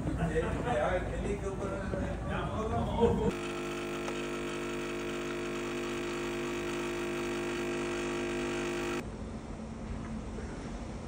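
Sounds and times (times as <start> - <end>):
coffee pouring into cup: 3.3 - 9.0
espresso machine pump buzzing: 3.3 - 9.0.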